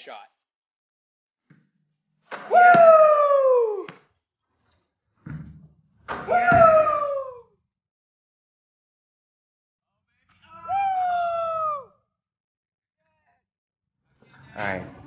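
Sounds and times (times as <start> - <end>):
boys yelling: 6.3 - 7.4, 10.5 - 11.9.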